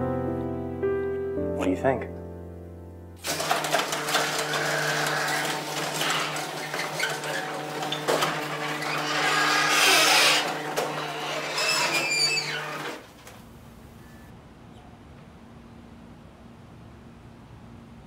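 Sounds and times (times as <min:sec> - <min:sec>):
garage door motor humming: 0:03.2 - 0:14.3.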